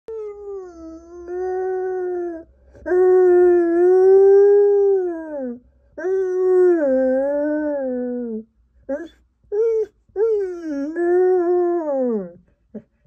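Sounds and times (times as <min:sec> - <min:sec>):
dog howling: 0:00.1 - 0:12.4.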